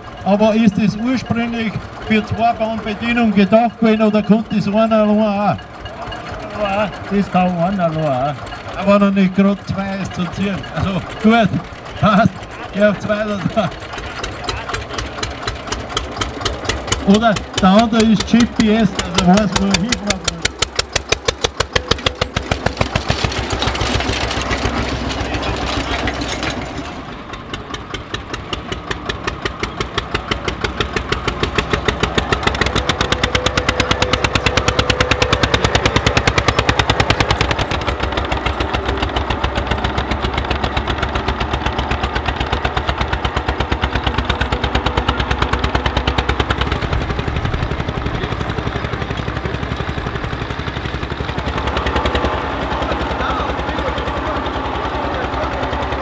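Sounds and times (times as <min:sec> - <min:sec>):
diesel tractor engine chugging: 0:00.0 - 0:56.0.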